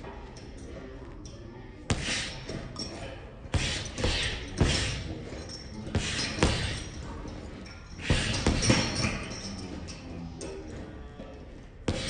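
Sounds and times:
gloves punching heavy bag: 0:08.0 - 0:09.2.

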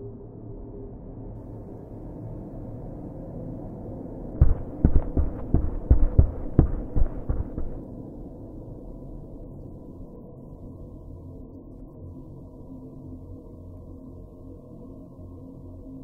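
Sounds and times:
steady low hum: 0:04.3 - 0:10.6
dull low thumps: 0:04.4 - 0:07.8.

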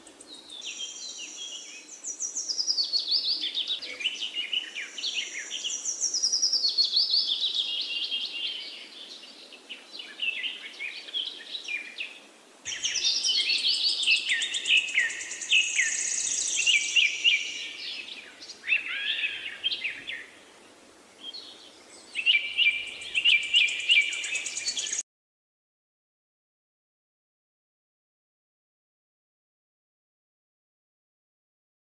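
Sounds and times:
birds singing and chirping: 0:00.0 - 0:20.4, 0:21.2 - 0:25.0.

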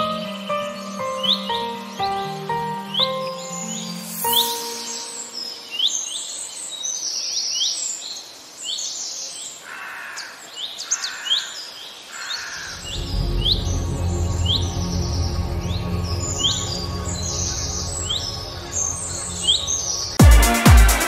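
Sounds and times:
music with low beat: 0:12.9 - 0:21.0.

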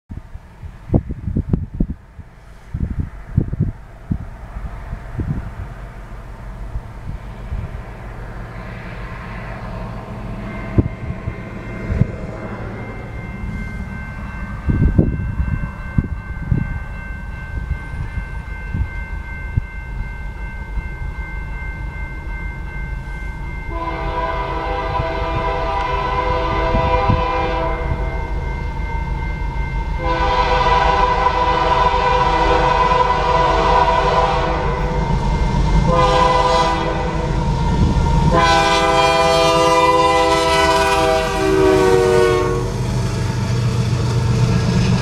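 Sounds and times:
low rumble of freight train: 0:00.1 - 0:45.0
railroad crossing bell ringing: 0:07.4 - 0:45.0
locomotive air horn: 0:23.7 - 0:28.1, 0:30.0 - 0:35.0, 0:35.7 - 0:37.4, 0:38.3 - 0:42.8.

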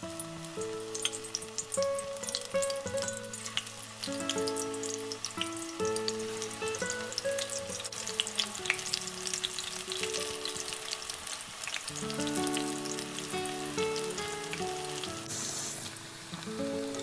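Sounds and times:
background music: 0:00.0 - 0:17.0
deep-frying oil sizzling and popping: 0:00.0 - 0:17.0.

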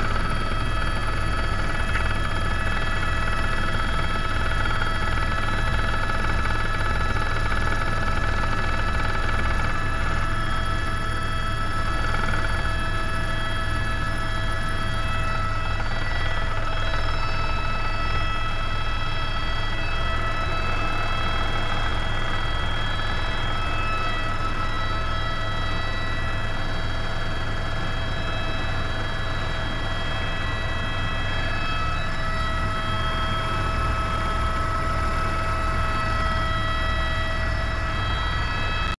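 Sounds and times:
helicopter rotor rumble: 0:00.0 - 0:38.9
helicopter turbine whine: 0:00.0 - 0:38.9.

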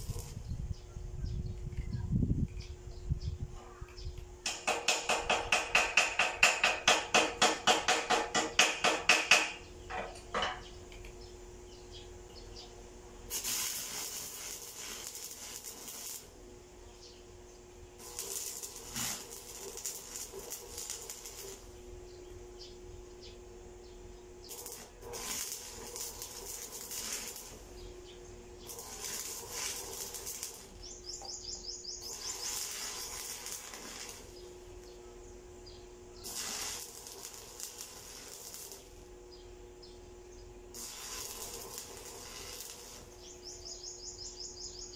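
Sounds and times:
electric arc welding crackling: 0:00.0 - 0:00.6, 0:13.0 - 0:23.4, 0:24.3 - 0:35.0, 0:35.6 - 0:40.0, 0:40.7 - 0:44.9
small bird chirping: 0:25.7 - 0:37.5, 0:41.2 - 0:44.9.

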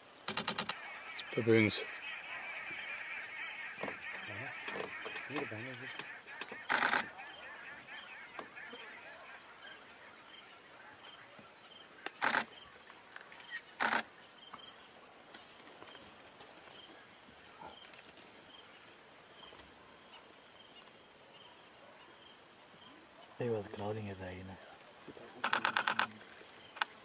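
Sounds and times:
insect chorus chirring: 0:00.0 - 0:27.0.

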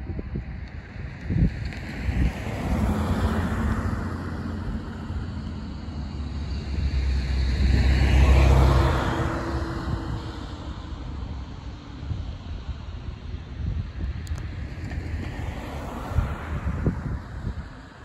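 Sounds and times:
vehicle engine drone passing: 0:01.3 - 0:12.2.

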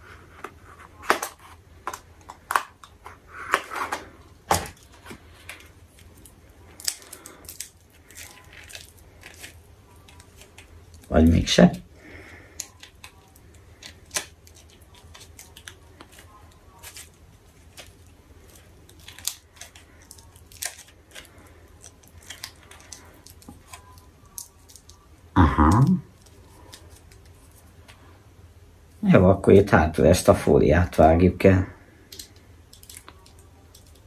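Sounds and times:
plastic package clicks and crackles: 0:01.0 - 0:11.1, 0:12.4 - 0:25.1, 0:32.1 - 0:34.0.

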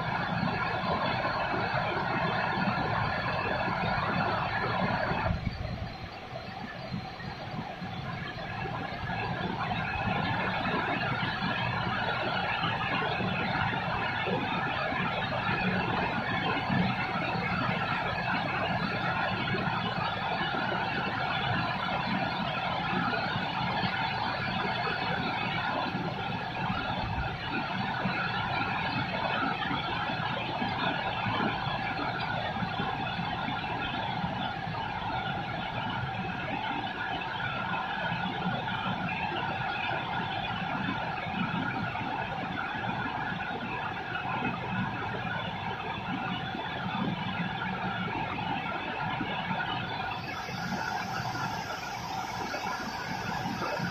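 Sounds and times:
steady rain hissing: 0:47.0 - 0:53.9.

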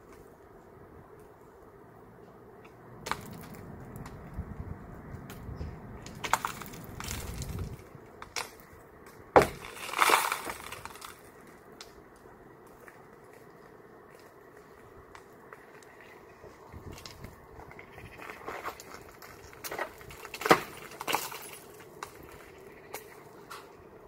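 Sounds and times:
glass cracking and breaking: 0:09.4 - 0:11.2, 0:20.3 - 0:21.7.

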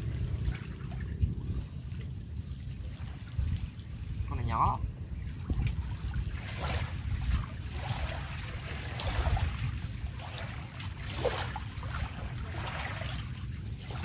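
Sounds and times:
small waves lapping: 0:00.0 - 0:14.0
wind buffeting microphone: 0:00.0 - 0:14.0.

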